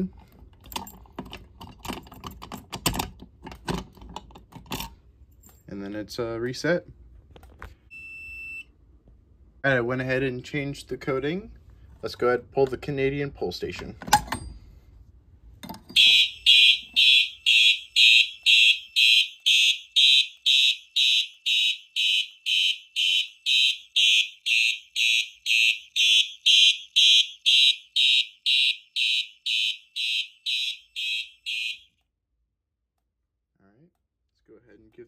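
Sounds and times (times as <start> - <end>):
fire alarm horns pulsing: 16.0 - 32.0.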